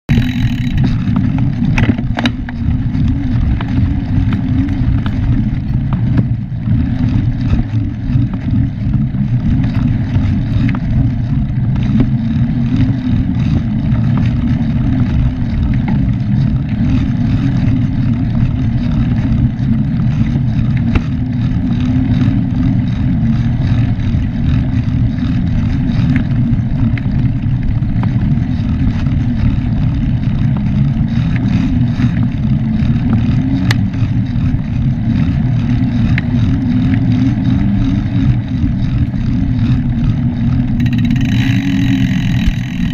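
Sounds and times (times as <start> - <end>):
bike clicks and rattles: 0.1 - 42.9.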